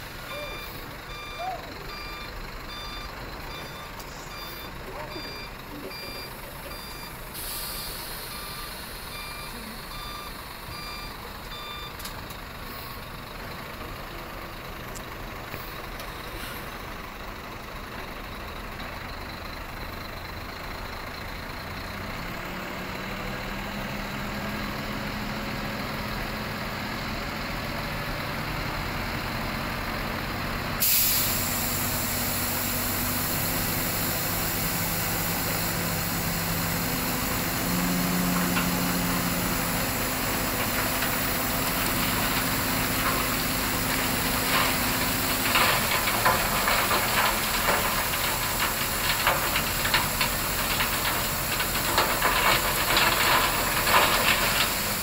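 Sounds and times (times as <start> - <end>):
diesel engine idling: 0.0 - 55.0
truck reversing alarm beeping: 0.0 - 55.0
loud air hiss: 7.4 - 8.3.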